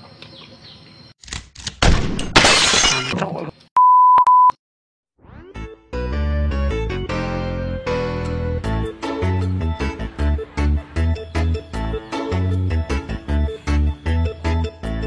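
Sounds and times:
steady test tone beep: 0:03.8 - 0:04.6
keyboard music: 0:05.3 - 0:15.0.

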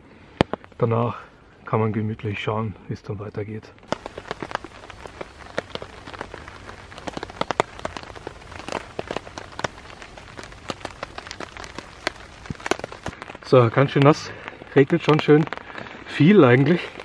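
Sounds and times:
rain hissing on a tarp: 0:00.0 - 0:17.0
drops tapping on fabric: 0:03.9 - 0:16.0.

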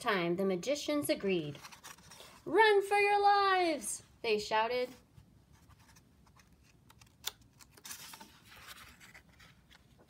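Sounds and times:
book pages rustling: 0:01.5 - 0:02.5, 0:05.5 - 0:10.0.

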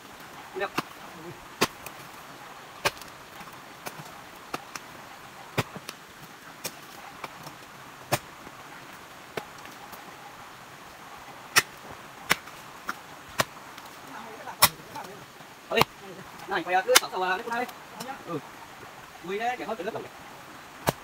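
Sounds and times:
hoe striking hard soil: 0:11.5 - 0:13.5.

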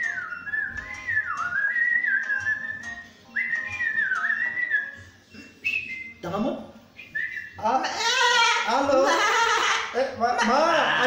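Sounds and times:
person whistling a tune: 0:00.0 - 0:06.2.

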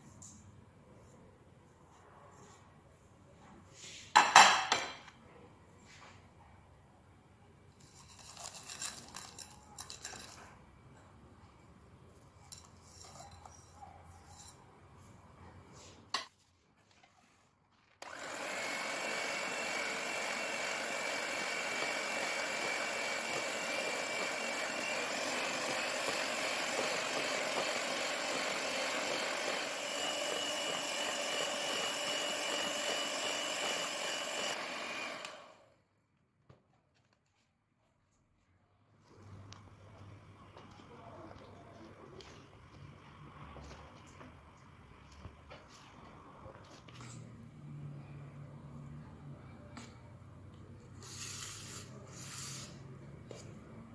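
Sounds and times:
electric hand mixer whining: 0:18.0 - 0:35.8
biscuit crumbs scraped from bowl: 0:51.0 - 0:52.9.

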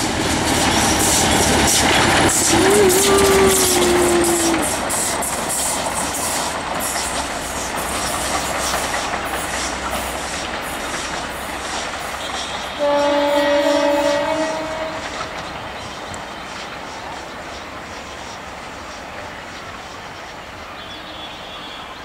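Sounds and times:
wheels clicking over rail joints: 0:00.0 - 0:12.8
diesel locomotive engine: 0:00.0 - 0:22.0
locomotive horn blast: 0:02.4 - 0:04.8, 0:12.2 - 0:15.3.

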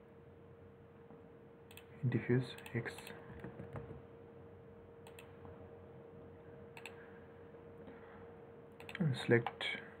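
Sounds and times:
faint electrical hum: 0:00.0 - 0:10.0
faint computer clicks: 0:05.0 - 0:05.4, 0:06.7 - 0:07.0, 0:08.8 - 0:09.6.

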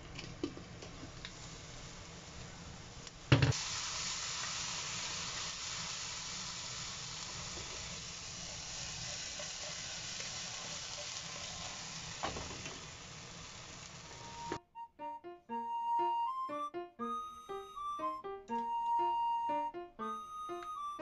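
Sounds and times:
food sizzling in frying pan: 0:00.0 - 0:14.6.

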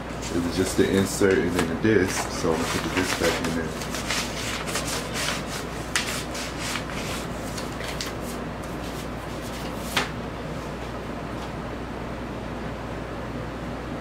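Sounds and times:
card and paper rubbing: 0:00.2 - 0:10.1.

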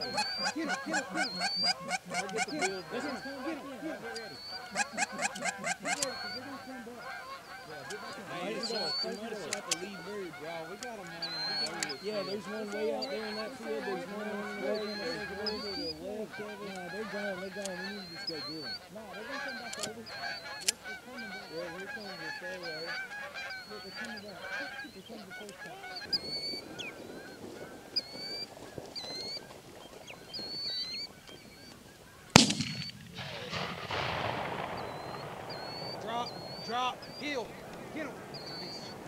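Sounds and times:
geese honking: 0:00.0 - 0:39.0
sharp cracks: 0:19.6 - 0:21.0, 0:26.5 - 0:39.0
loud bang: 0:32.4 - 0:38.5.

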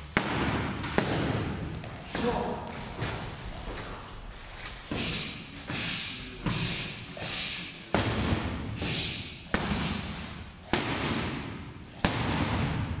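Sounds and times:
boxing gloves smacking mitts: 0:00.1 - 0:03.2, 0:07.9 - 0:13.0.

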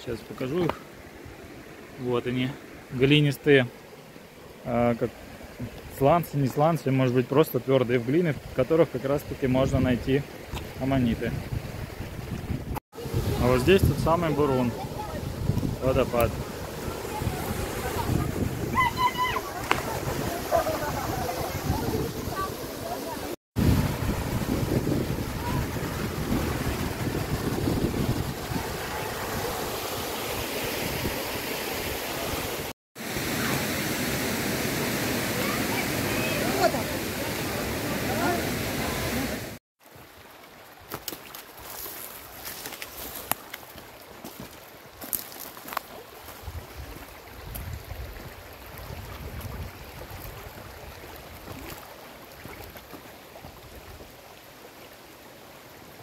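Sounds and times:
wind buffeting microphone: 0:10.6 - 0:22.8, 0:23.6 - 0:29.8, 0:46.4 - 0:51.0
waterfall rushing: 0:13.0 - 0:40.6.

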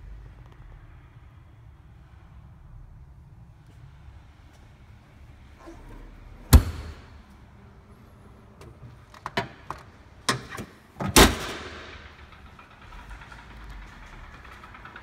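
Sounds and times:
car body panel slamming shut: 0:06.5 - 0:07.1
engine cover slamming shut: 0:06.5 - 0:07.2, 0:10.3 - 0:12.3.

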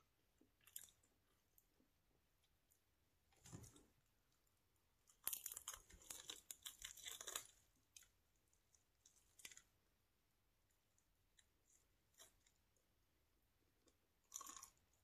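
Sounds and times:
crunching of crispy chicken: 0:05.1 - 0:08.1, 0:14.3 - 0:14.8.

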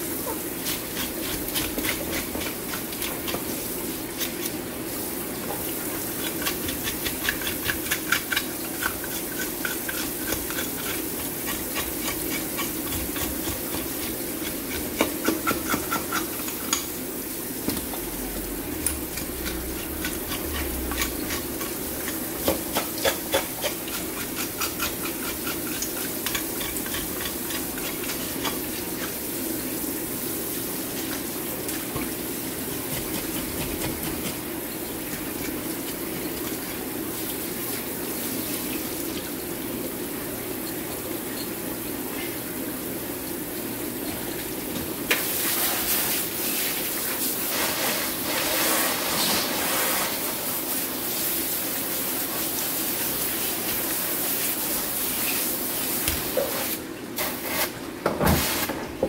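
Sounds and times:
running water spray: 0:45.1 - 0:58.8.

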